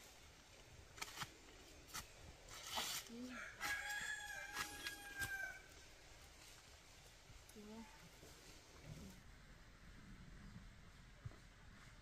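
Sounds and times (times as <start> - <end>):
rooster crowing: 3.3 - 5.7.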